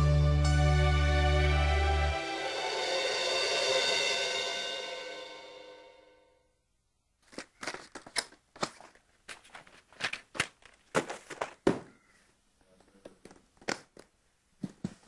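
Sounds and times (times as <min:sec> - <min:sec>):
rustles and knocks of handled items: 0:07.2 - 0:15.0.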